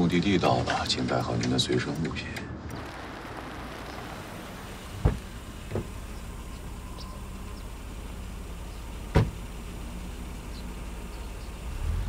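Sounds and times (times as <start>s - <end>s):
low car hum: 0.0s - 12.0s
car door slamming: 4.9s - 6.2s, 9.1s - 9.5s.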